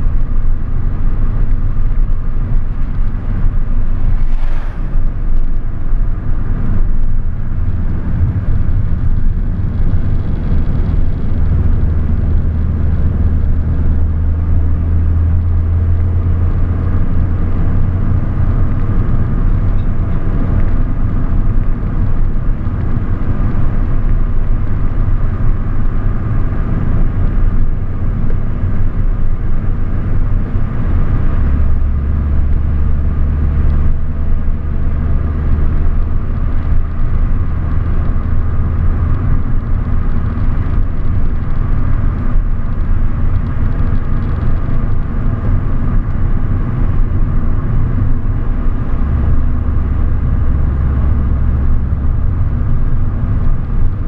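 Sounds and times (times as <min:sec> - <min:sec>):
car engine and road noise: 0:00.0 - 0:54.0
brief hiss: 0:04.2 - 0:05.1.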